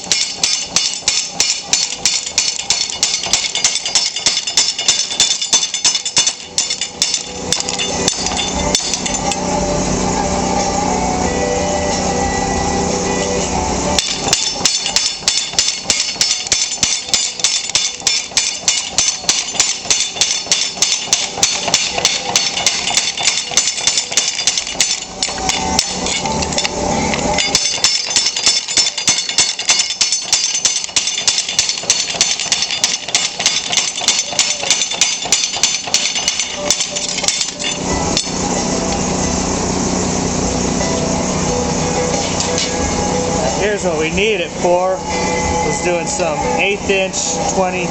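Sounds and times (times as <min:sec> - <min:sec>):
trip hammer pounding steel: 0:00.0 - 0:09.5, 0:14.0 - 0:38.5
motor hum: 0:00.0 - 0:47.9.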